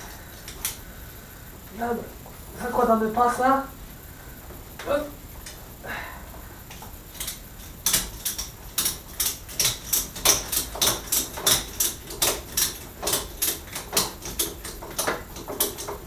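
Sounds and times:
ratchet strap clicking: 0:07.1 - 0:16.0.

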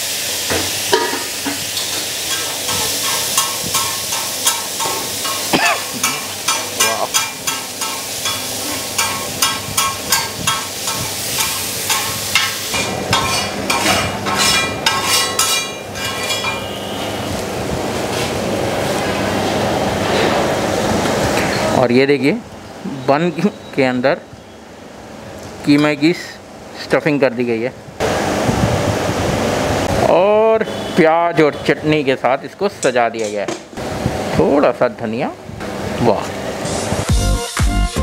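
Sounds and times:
minced meat sizzling: 0:00.0 - 0:19.6
metal spatula clanking and scraping: 0:00.5 - 0:16.8.

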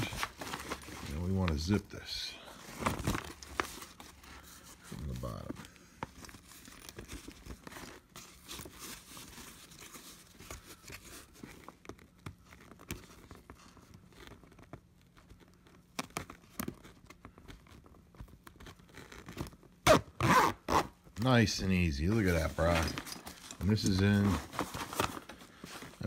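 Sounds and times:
zipper clicks: 0:19.8 - 0:20.9.

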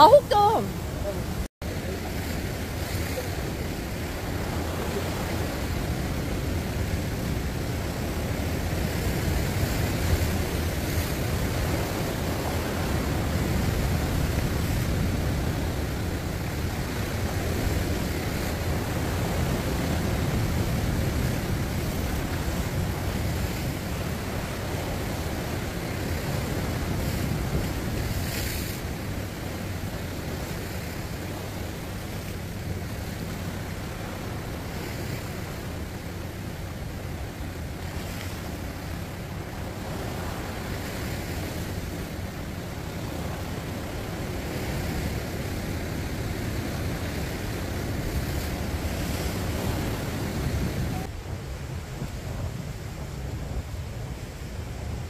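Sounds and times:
surf breaking on rocky shore: 0:00.0 - 0:55.0
wind rumbling on microphone: 0:00.0 - 0:55.0.

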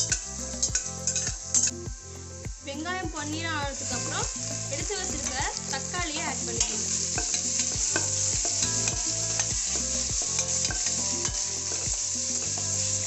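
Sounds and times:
onions and tomato sizzling: 0:00.0 - 0:13.0.

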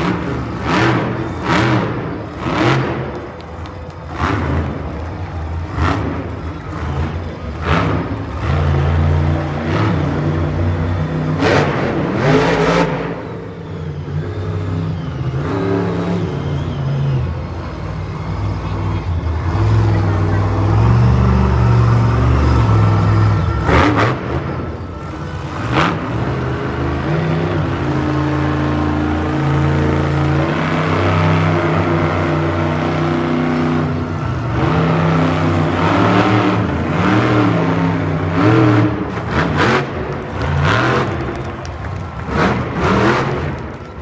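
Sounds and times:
truck engine revving hard: 0:00.0 - 0:44.0.

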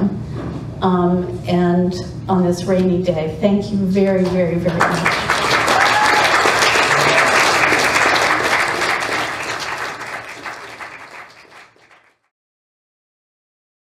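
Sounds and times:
audience applauding: 0:04.7 - 0:12.3.

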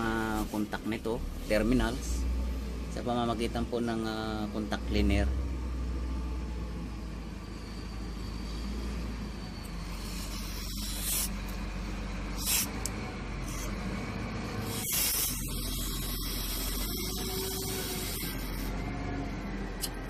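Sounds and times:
aerosol spray hissing: 0:09.9 - 0:11.5, 0:12.4 - 0:13.7, 0:14.6 - 0:18.7.

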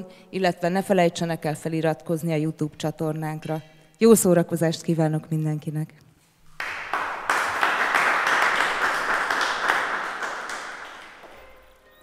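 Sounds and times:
audience applauding: 0:06.5 - 0:11.9.

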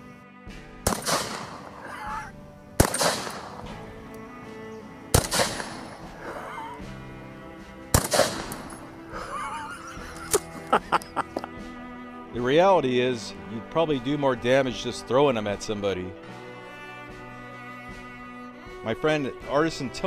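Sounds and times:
shotgun shots with echo: 0:00.8 - 0:01.8, 0:02.8 - 0:03.8, 0:05.1 - 0:06.0, 0:07.9 - 0:08.8.

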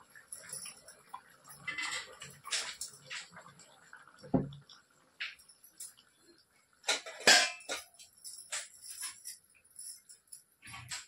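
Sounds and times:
metallic clinks and jingling: 0:07.6 - 0:11.0.

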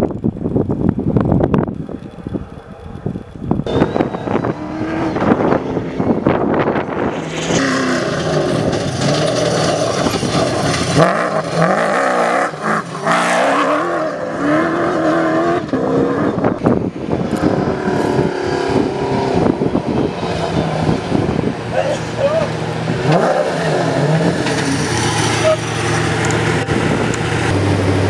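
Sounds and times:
truck engines revving: 0:00.0 - 0:28.0
tyres on gravel: 0:01.8 - 0:13.9, 0:21.7 - 0:27.5.

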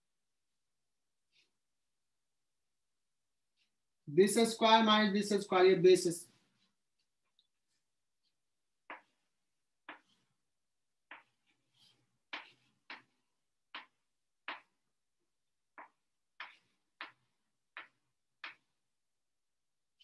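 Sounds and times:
chalk scraping: 0:06.4 - 0:10.4, 0:11.1 - 0:14.0
chalk tapping on chalkboard: 0:08.8 - 0:10.3, 0:11.0 - 0:14.9, 0:15.7 - 0:18.7.

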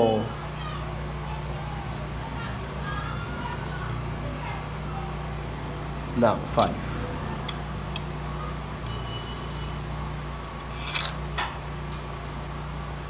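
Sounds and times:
metal parts clattering: 0:10.6 - 0:11.2.

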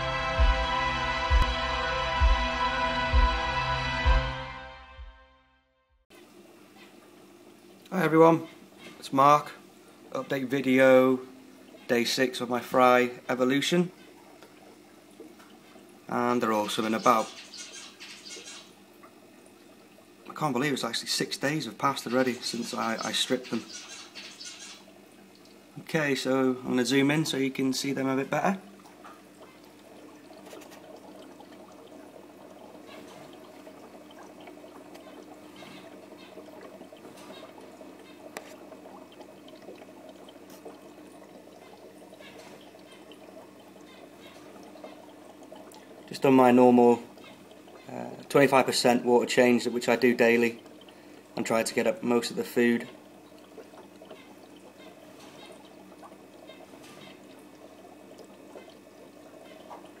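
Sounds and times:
low hum: 0:00.0 - 0:05.5
water trickling and bubbling: 0:06.1 - 1:00.0.

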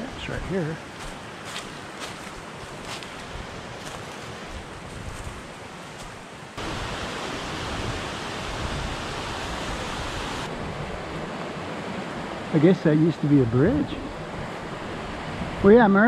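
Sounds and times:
water rushing over rocks: 0:06.6 - 0:10.5.

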